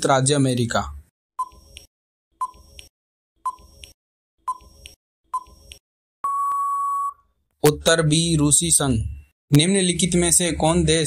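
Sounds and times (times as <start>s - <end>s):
long steady beep: 6.2s - 7.2s
short beeps: 6.2s - 7.3s.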